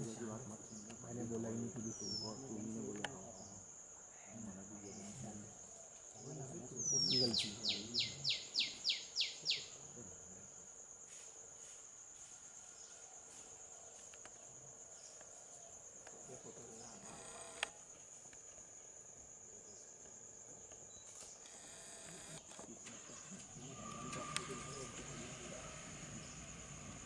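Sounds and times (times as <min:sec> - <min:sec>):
insects droning: 0:00.0 - 0:27.0
whistled bird notes: 0:01.8 - 0:02.4, 0:06.8 - 0:09.8, 0:23.2 - 0:27.0.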